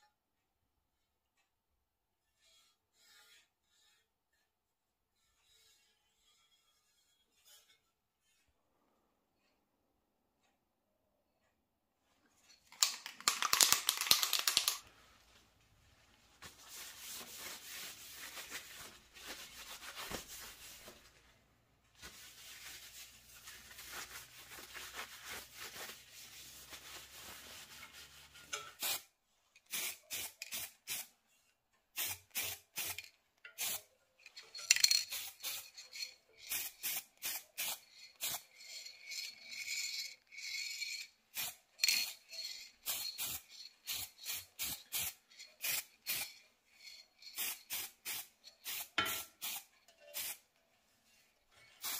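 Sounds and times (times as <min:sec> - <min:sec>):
paper towel rubbing metal pipe: 0:02.4 - 0:04.2, 0:16.0 - 0:29.1
spray can hissing: 0:28.8 - 0:29.1, 0:29.7 - 0:31.1, 0:32.0 - 0:33.8, 0:34.6 - 0:50.4.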